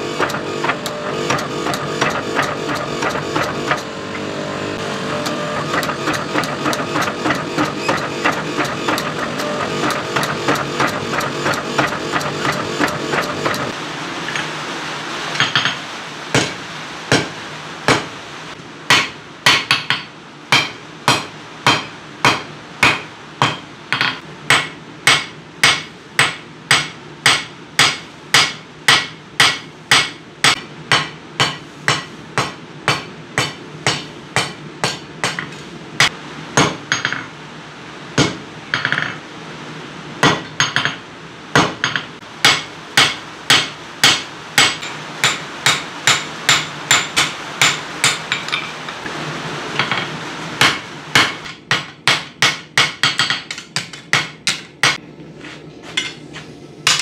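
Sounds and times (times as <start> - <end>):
hammer striking hot steel on anvil: 0.1 - 3.9, 5.2 - 13.8, 15.4 - 18.2, 18.9 - 37.3, 38.2 - 39.2, 40.2 - 49.1, 49.8 - 55.0.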